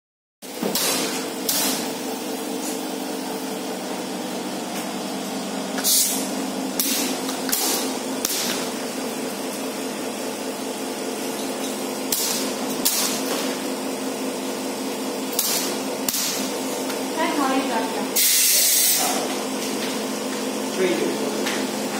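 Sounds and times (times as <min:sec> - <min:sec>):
electrical equipment hum: 0:00.4 - 0:21.9.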